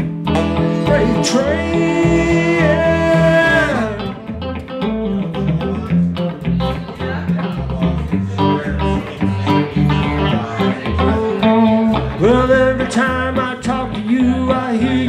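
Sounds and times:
electric bass: 0.0s - 15.0s
electric guitar: 0.0s - 15.0s
person singing: 0.4s - 4.4s, 8.4s - 15.0s.

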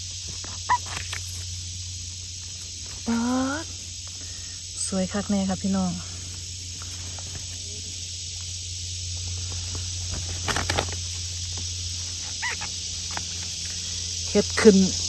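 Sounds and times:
insect chorus humming: 0.0s - 15.0s
handling rustle: 6.2s - 8.2s, 9.1s - 14.0s.

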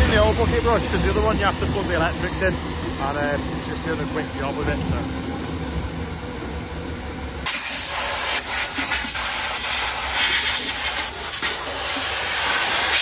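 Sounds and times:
engine hum: 0.0s - 7.5s
compressed air blow gun hissing: 7.4s - 13.0s.

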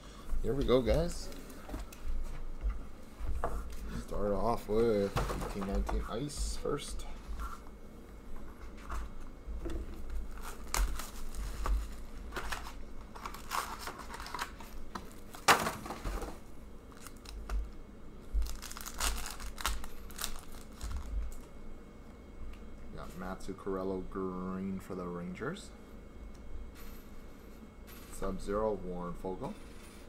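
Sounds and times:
card packs crinkling and tearing: 10.3s - 16.3s, 16.9s - 17.6s, 18.4s - 21.5s.

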